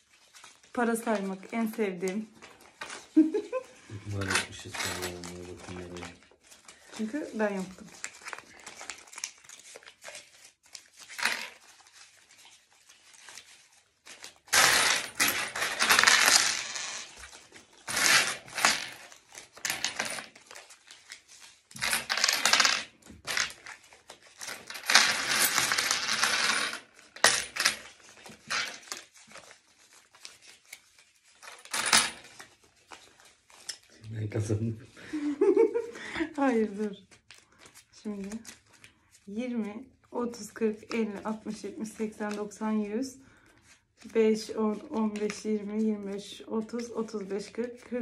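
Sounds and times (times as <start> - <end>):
rustling and shuffling: 0.0 - 14.5
coins clinking on wooden table: 4.1 - 5.2, 11.2 - 11.6, 14.5 - 17.2, 17.9 - 20.4, 21.8 - 23.6, 24.4 - 27.9, 28.5 - 28.8, 31.7 - 32.3.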